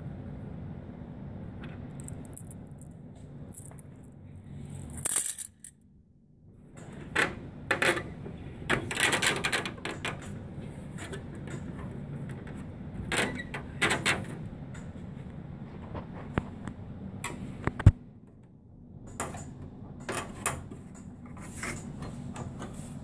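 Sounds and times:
small metal parts clinking: 2.0 - 5.8.

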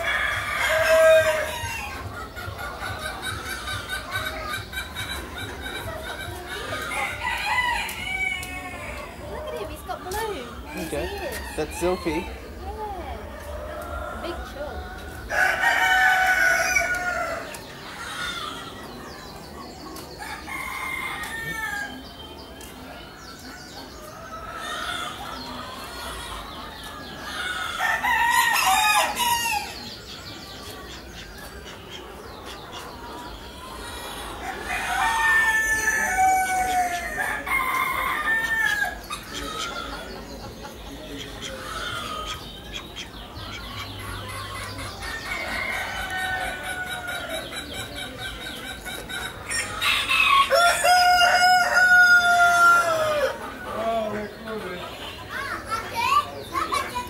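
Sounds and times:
roosters crowing: 0.0 - 19.0, 20.1 - 30.5, 32.2 - 54.5
soft fowl calls: 30.6 - 57.0.

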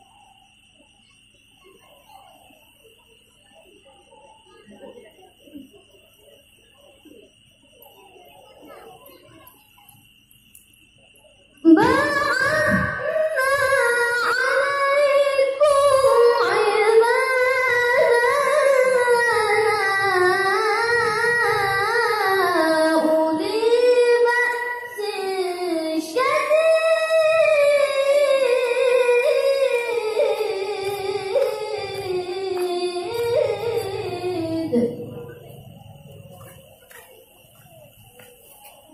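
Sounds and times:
child reciting melodically: 11.6 - 35.6.

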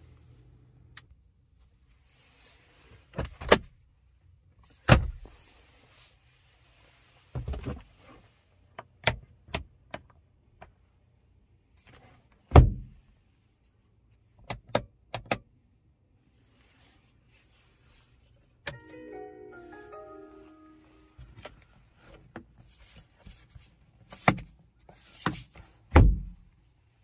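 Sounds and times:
sun visor thump: 25.9 - 26.4.

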